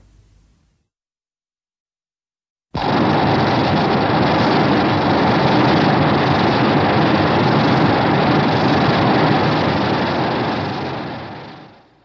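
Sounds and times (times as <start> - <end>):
dense rushing noise: 2.8 - 11.9.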